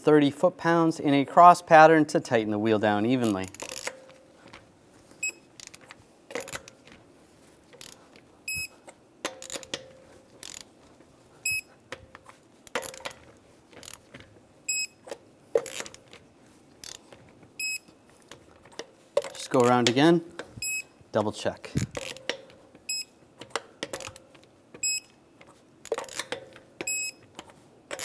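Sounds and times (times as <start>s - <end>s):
torque wrench high beeps: 8.5s - 8.7s, 11.4s - 11.7s, 20.6s - 20.9s, 24.8s - 25.1s, 26.9s - 27.2s.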